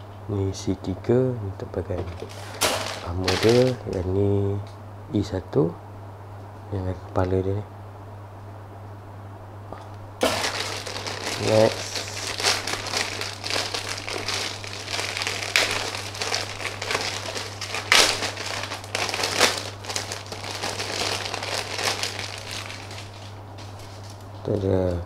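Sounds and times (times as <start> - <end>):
plastic bags crinkling: 2.0 - 4.2, 10.2 - 24.6.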